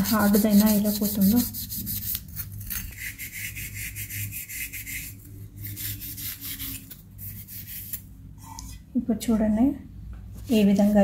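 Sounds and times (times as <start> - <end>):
scrub pad scouring steel cup: 0.0 - 2.2.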